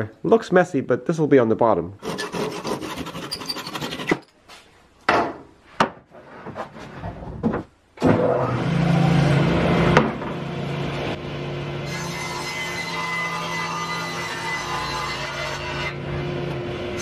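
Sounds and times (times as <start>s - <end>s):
handsaw cutting wood: 2.0s - 4.2s.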